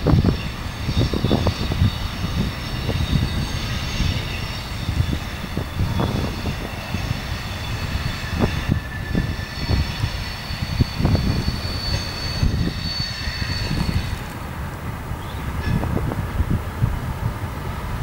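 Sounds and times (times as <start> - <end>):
diesel railcar rumbling: 0.0 - 18.0
wheel flange squeal: 0.1 - 14.4.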